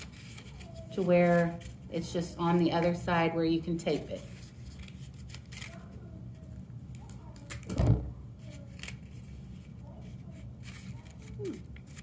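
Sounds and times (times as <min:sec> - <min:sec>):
paper rustling: 0:00.0 - 0:01.8, 0:03.9 - 0:07.8, 0:08.4 - 0:12.0.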